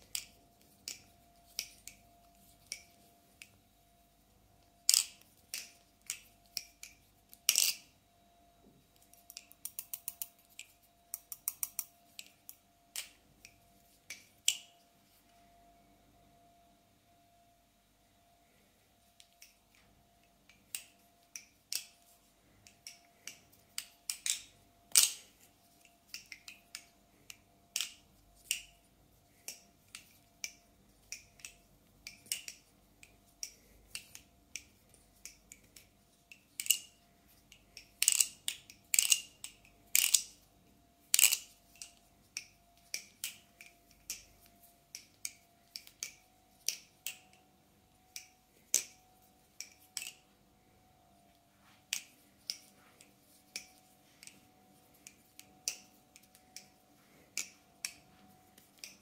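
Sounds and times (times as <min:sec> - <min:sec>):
butterfly knife clicking and clacking: 0:00.0 - 0:03.6, 0:04.8 - 0:07.9, 0:09.0 - 0:14.7, 0:20.4 - 0:28.8, 0:29.4 - 0:40.4, 0:41.1 - 0:47.4, 0:48.1 - 0:50.2, 0:51.9 - 0:52.7, 0:53.3 - 0:59.0.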